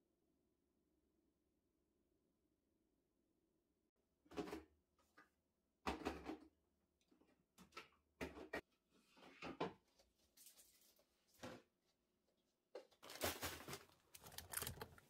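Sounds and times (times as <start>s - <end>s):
plastic bins knocking and clattering: 5.8s - 6.5s.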